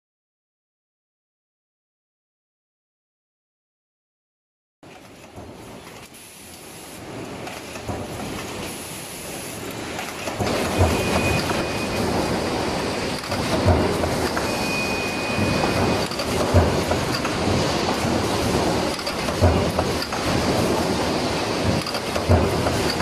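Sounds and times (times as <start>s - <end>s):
press thumping: 10.0s - 23.0s
stamping press din: 10.0s - 23.0s.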